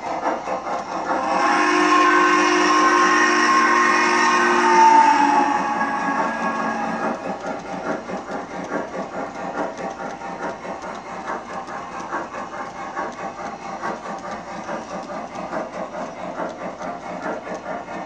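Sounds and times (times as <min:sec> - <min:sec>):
model train wheels clattering: 0:00.0 - 0:18.0
steam chuffing: 0:00.0 - 0:18.0
steam whistle blast: 0:01.2 - 0:07.2.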